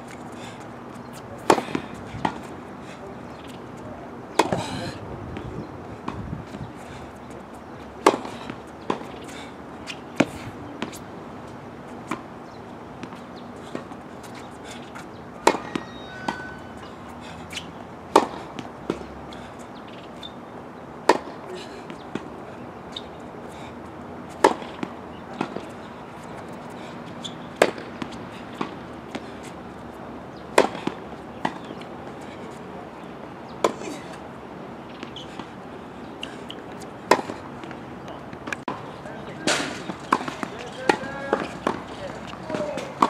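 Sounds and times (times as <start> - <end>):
tennis racket hitting ball: 1.4 - 2.5, 4.4 - 4.6, 8.0 - 9.2, 14.8 - 16.6, 17.5 - 19.1, 21.0 - 22.3, 24.4 - 25.7, 27.6 - 29.4, 30.5 - 31.8, 36.2 - 37.8, 39.4 - 43.0.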